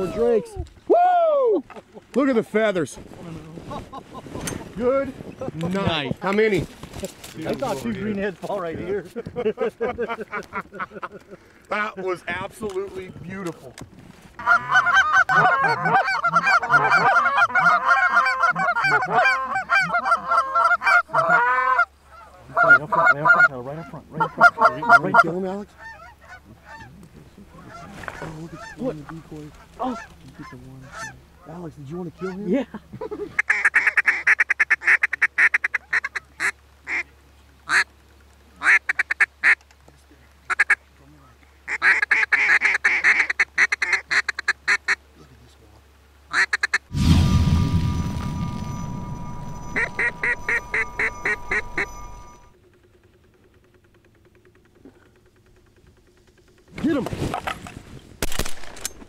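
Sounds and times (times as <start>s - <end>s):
duck call quacking: 14.4s - 26.9s, 33.3s - 37.1s, 37.7s - 37.9s, 38.6s - 39.6s, 40.5s - 40.8s, 41.7s - 45.0s, 46.3s - 46.8s
geese honking: 14.4s - 32.5s, 49.6s - 52.5s.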